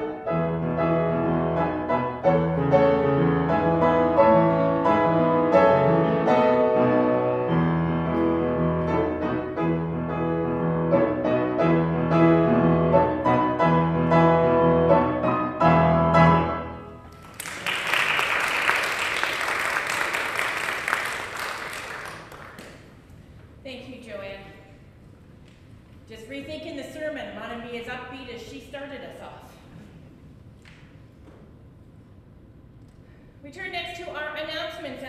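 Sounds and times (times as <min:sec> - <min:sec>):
solo piano music: 0:00.0 - 0:17.1
applause: 0:17.1 - 0:23.0.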